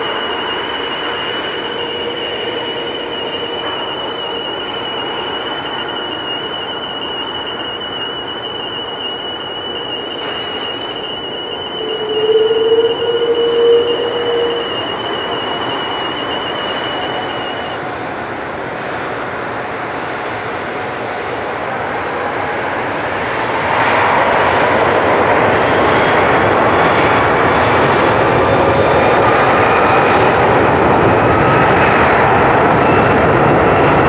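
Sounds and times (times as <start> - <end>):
thin high whine: 0.0 - 18.0
low drone: 0.0 - 20.6
jet engines rushing: 0.0 - 34.0.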